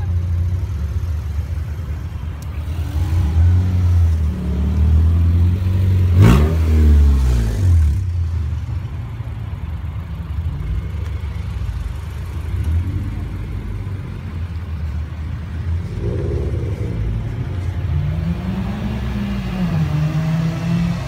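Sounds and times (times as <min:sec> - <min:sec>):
car engines running: 0:00.0 - 0:21.0.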